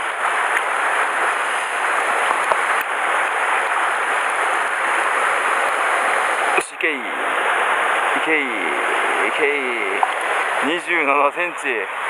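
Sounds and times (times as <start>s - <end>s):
stream rushing over pebbles: 0.0s - 12.0s.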